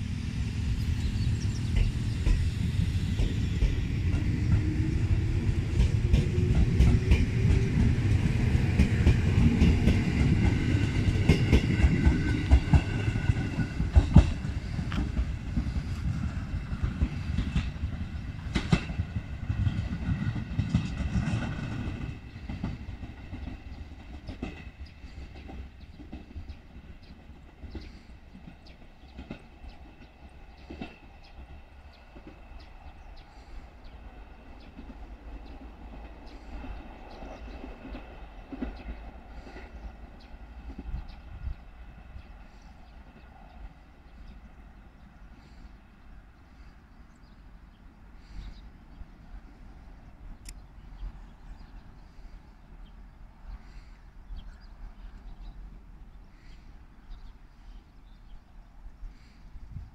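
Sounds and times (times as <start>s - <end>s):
electric train rumble and whine: 0.0s - 59.9s
wheels clacking over rail joints: 1.7s - 31.4s.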